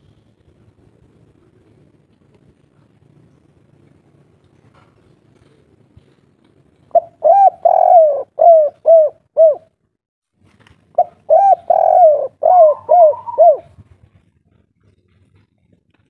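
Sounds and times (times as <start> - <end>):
dove cooing: 6.9 - 9.7, 11.0 - 13.9.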